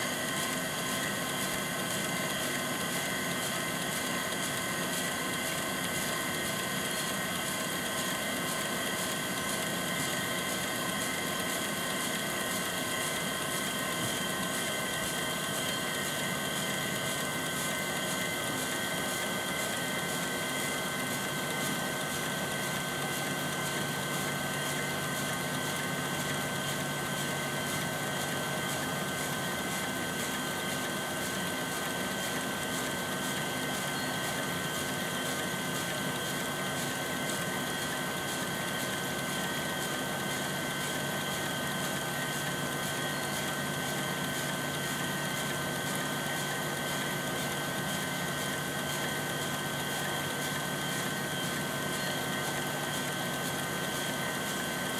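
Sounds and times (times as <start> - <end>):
water spraying from sprinklers: 17.2 - 54.9.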